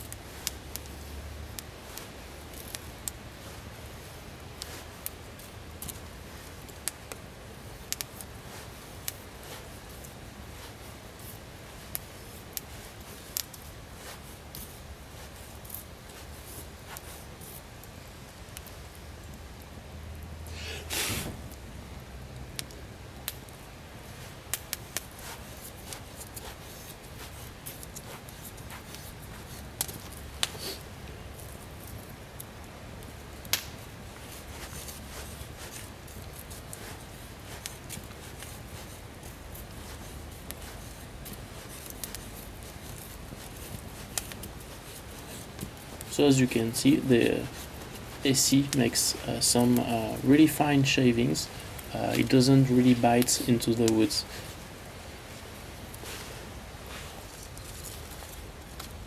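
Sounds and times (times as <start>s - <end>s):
knife shaving wood: 0.0s - 17.9s, 23.4s - 32.5s, 33.4s - 54.7s
knife scraping wooden stick: 34.2s - 50.2s.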